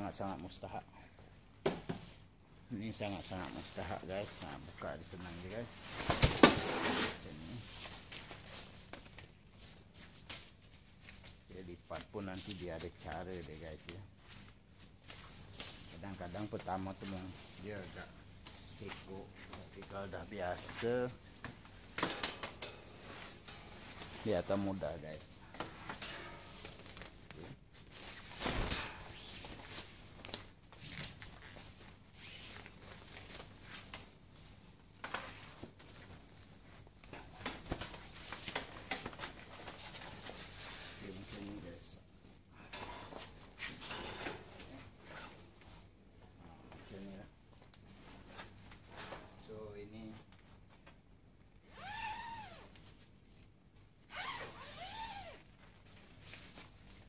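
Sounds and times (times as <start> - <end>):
nylon fabric rustling: 54.1 - 57.0.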